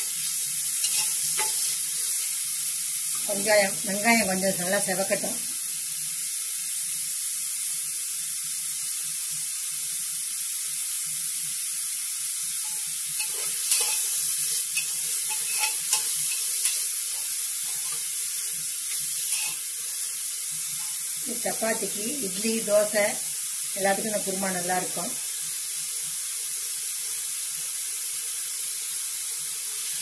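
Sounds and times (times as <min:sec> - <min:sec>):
onions sizzling in oil: 0:00.0 - 0:30.0
metal spoon scraping a pot: 0:00.8 - 0:01.8, 0:12.6 - 0:18.1, 0:18.9 - 0:19.7.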